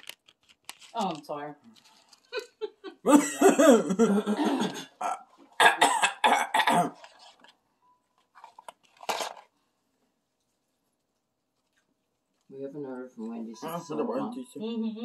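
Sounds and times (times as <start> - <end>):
person making throat noises: 3.1 - 7.0.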